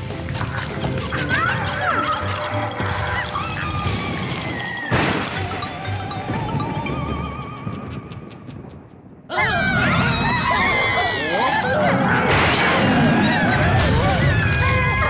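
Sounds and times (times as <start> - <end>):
music jingle: 5.4 - 8.2
cartoon characters screaming: 9.3 - 15.0.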